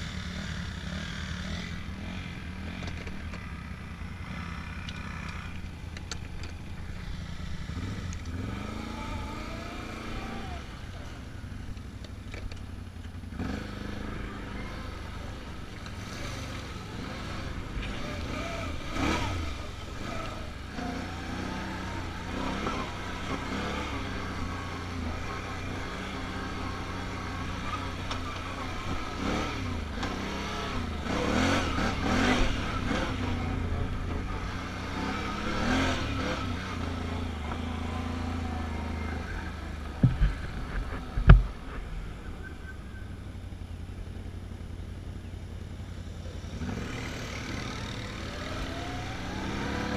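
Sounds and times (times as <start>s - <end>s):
atv engine revving: 0.0s - 49.9s
sharp thumps: 39.9s - 42.0s.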